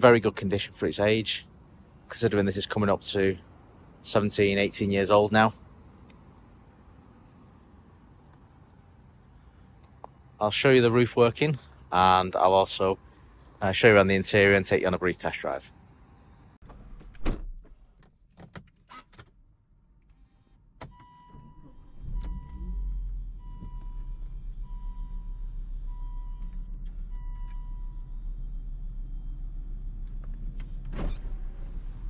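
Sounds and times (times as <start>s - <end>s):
car engine starting and idling: 19.4s - 32.0s.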